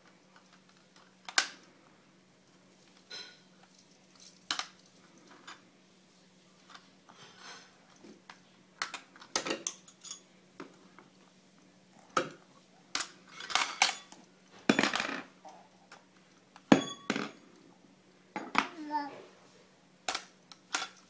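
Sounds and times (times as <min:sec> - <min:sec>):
metallic ring: 0:16.7 - 0:17.4.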